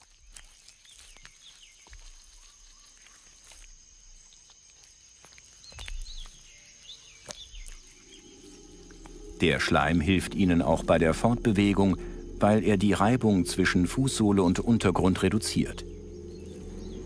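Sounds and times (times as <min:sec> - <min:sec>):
steady high-pitched tone: 0:08.2 - 0:17.0.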